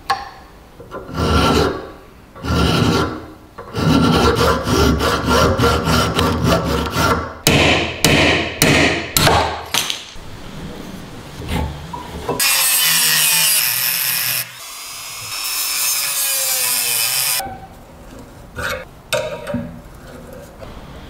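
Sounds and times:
hand file scraping iron: 0.9s - 7.3s.

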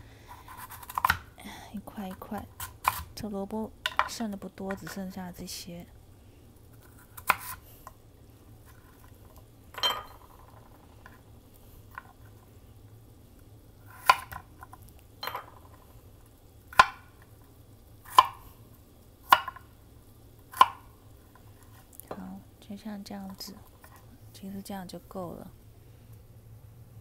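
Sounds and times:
knife chopping on cutting board: 7.2s - 7.6s, 16.8s - 17.1s, 18.1s - 18.4s, 20.5s - 20.9s.

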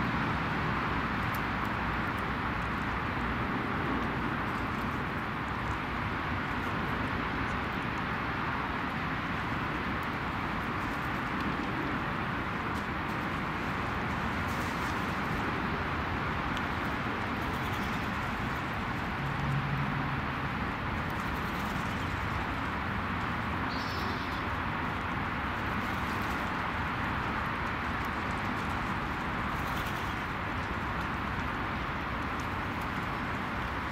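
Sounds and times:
outdoor background hiss: 19.9s - 33.9s.

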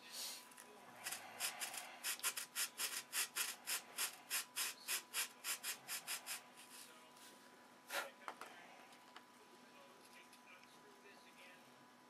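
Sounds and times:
sandpaper rubbing on wood: 1.0s - 6.8s.

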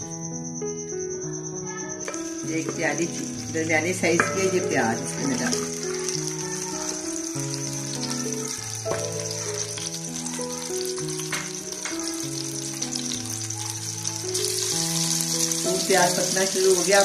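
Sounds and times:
soft background music: 0.0s - 17.0s
onions sizzling in a pan: 1.6s - 17.0s.

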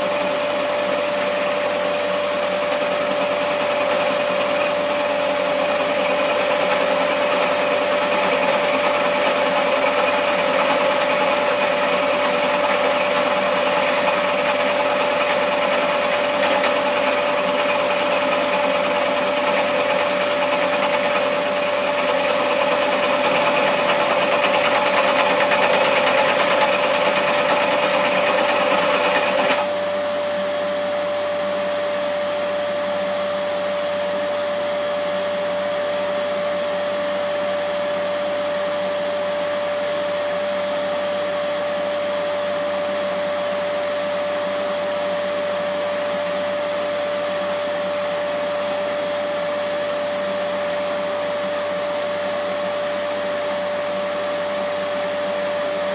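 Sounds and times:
scroll saw whining: 0.0s - 55.9s.

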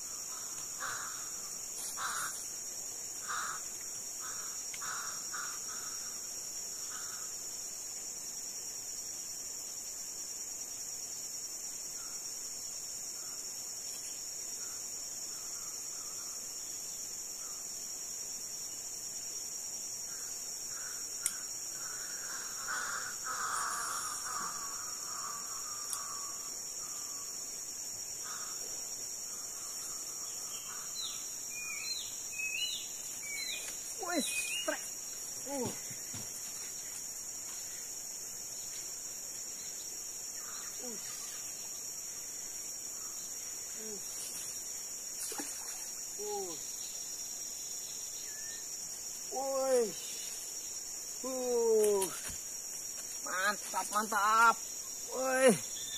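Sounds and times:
high-pitched insect drone: 18.4s - 55.9s
bird calling: 29.4s - 35.9s.

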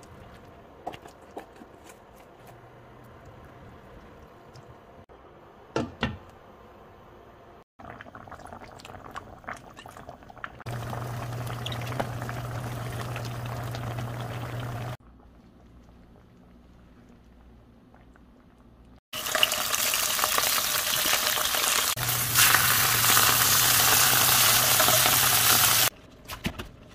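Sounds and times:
broth bubbling in a pan: 7.8s - 25.9s
low hum: 10.7s - 18.9s.

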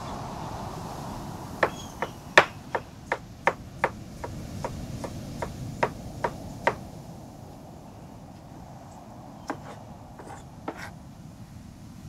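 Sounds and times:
knife slicing on wooden board: 9.5s - 10.9s.

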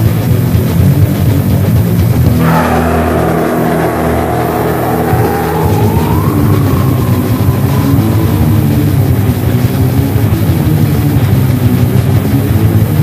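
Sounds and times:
death metal music: 0.3s - 13.0s
high sliding tone: 2.3s - 10.3s.

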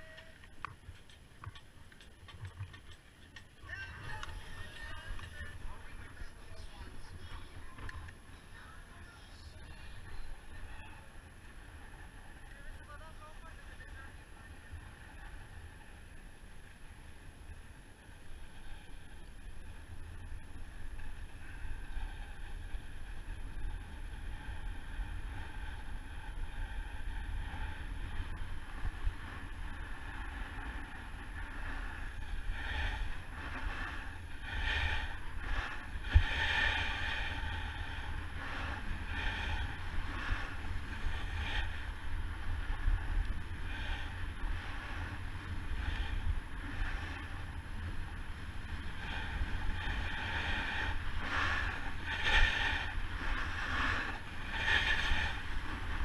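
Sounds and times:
wind rumble on microphone: 0.0s - 56.0s
snowboard scraping over snow: 21.3s - 56.0s.

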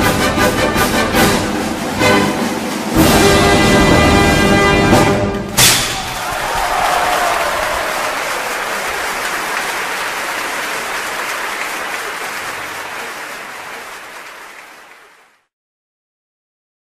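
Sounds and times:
audience applauding: 5.9s - 15.5s.

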